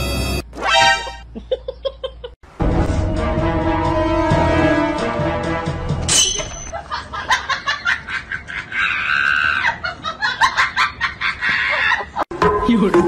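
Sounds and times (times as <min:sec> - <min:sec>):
person laughing: 0:01.3 - 0:02.4, 0:06.8 - 0:12.2
high-pitched shriek of laughter: 0:08.5 - 0:10.0.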